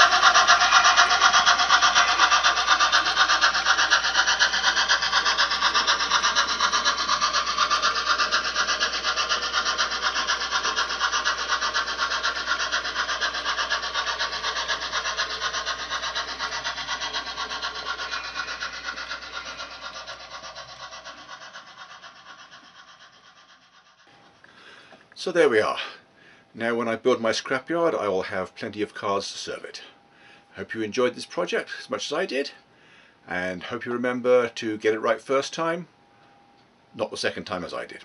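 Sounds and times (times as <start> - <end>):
model train wheels rattling: 0.0 - 24.2.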